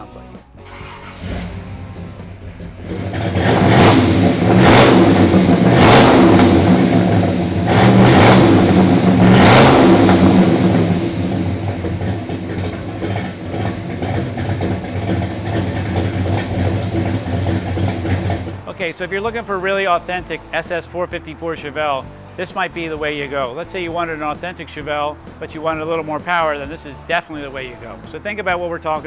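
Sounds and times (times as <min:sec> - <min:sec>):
car engine revving and idling: 0:00.6 - 0:18.9.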